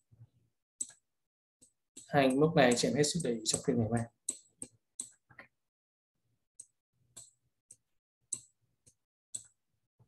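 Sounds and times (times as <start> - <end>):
computer mouse clicks: 0.8 - 1.0, 1.6 - 5.6, 6.6 - 9.6.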